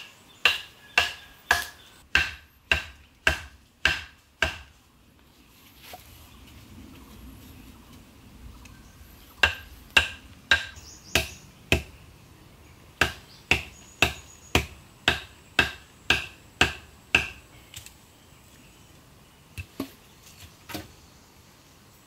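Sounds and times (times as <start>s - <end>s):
stake being hammered: 0.0s - 4.8s, 9.4s - 11.9s, 13.0s - 17.4s.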